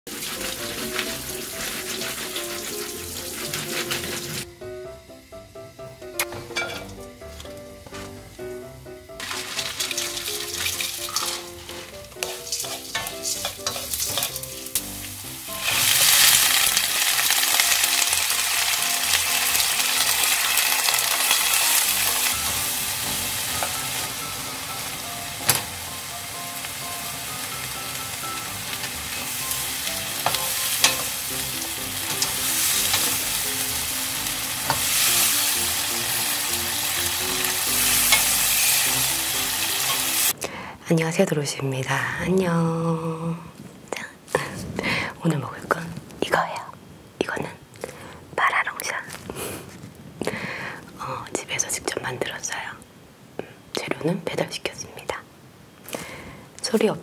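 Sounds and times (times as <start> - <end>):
oil sizzling in a frying pan: 0.1 - 40.4.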